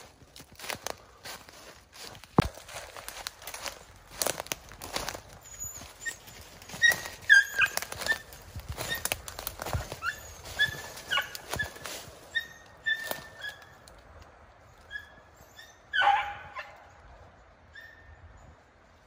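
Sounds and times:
footsteps crunching dry leaves: 0.0s - 14.1s
dog yelping: 5.1s - 13.8s, 14.9s - 16.8s, 17.7s - 18.2s
dog whimpering: 5.4s - 9.1s.

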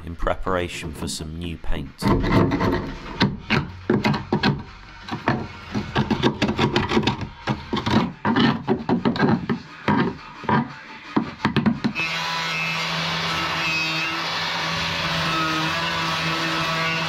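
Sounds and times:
screwdriver scraping metal: 2.0s - 10.8s.

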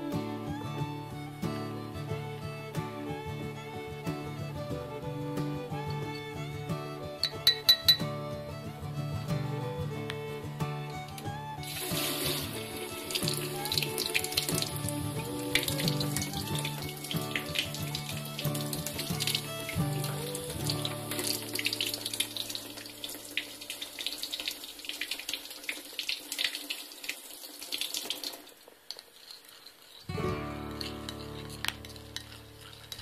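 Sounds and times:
tap turned on: 9.5s - 22.8s
water splashing into metal sink: 11.7s - 17.7s, 20.8s - 29.1s.

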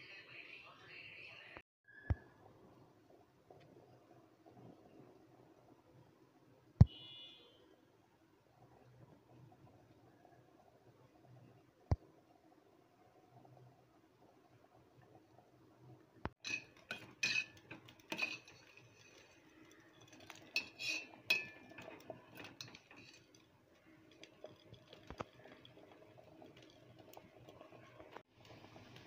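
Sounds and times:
ladle scraping metal pot: 16.4s - 28.2s.

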